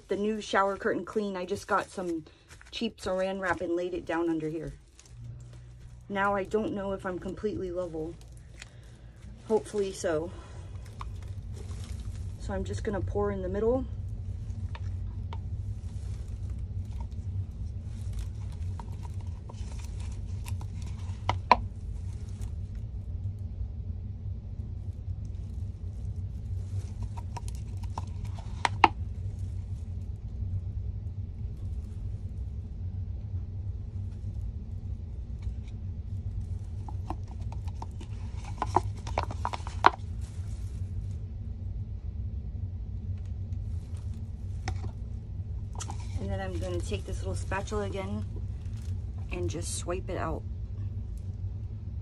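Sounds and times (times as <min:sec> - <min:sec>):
low background hum: 0:00.0 - 0:52.0
resin pouring: 0:00.6 - 0:12.6, 0:13.9 - 0:23.2, 0:24.8 - 0:30.2, 0:34.0 - 0:41.3
spatula scraping plastic cup: 0:36.9 - 0:40.0.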